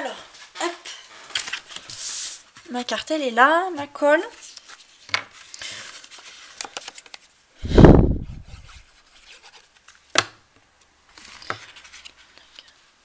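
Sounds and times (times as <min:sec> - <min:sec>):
paper rustling: 0:01.1 - 0:03.0, 0:04.3 - 0:07.4, 0:11.1 - 0:12.8.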